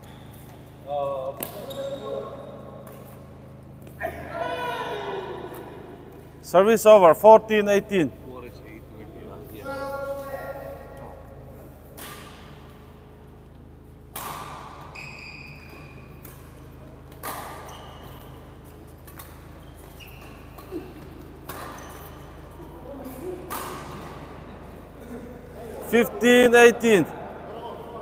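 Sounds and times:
shoes squeaking on court floor: 0.0s - 4.1s, 13.7s - 25.0s
racket hitting shuttlecock: 1.4s - 1.7s, 11.9s - 12.9s, 14.1s - 15.0s, 15.6s - 24.4s.

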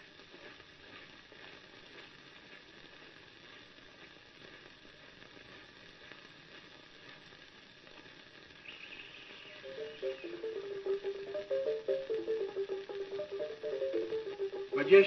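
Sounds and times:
old recording hiss: 0.0s - 15.0s.

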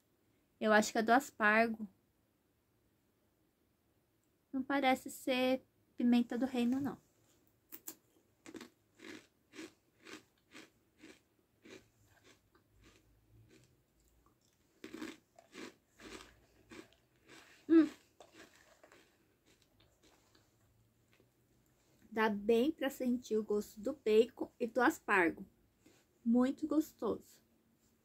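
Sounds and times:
chewing crunchy snacks: 7.7s - 21.3s.

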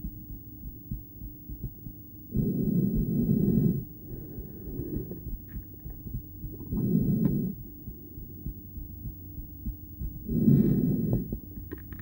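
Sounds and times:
heartbeat thuds through stethoscope: 0.0s - 12.0s
breath through stethoscope: 3.3s - 5.6s, 10.3s - 11.8s.

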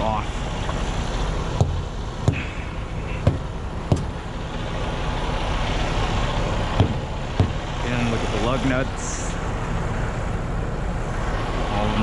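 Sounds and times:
diesel truck engine idling: 0.0s - 12.0s
sharp knocks: 1.6s - 4.2s, 6.7s - 7.7s.

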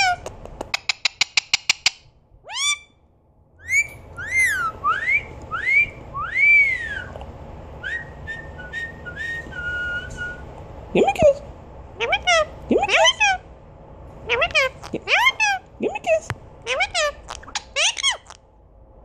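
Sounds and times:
parakeet clicking: 0.2s - 2.0s
parakeet whistling: 2.5s - 2.9s, 3.6s - 7.2s, 7.8s - 10.5s, 16.7s - 18.4s.

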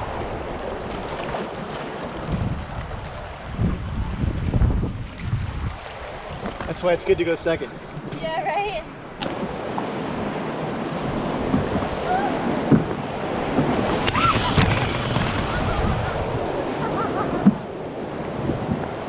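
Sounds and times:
whitewater rushing and splashing: 0.0s - 19.0s
wind buffeting microphone: 0.0s - 19.0s
sharp knocks on hull: 12.6s - 15.8s.

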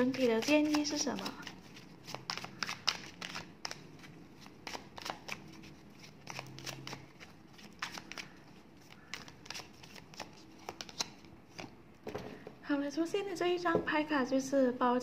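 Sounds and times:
cards being shuffled: 0.0s - 11.8s.

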